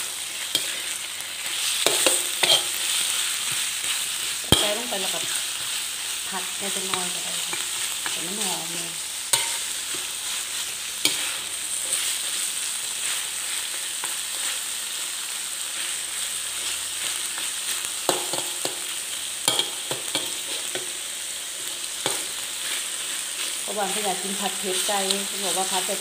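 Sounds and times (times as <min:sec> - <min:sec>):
chicken sizzling in oil: 0:00.0 - 0:26.0
metal spatula scraping wok: 0:00.4 - 0:14.7.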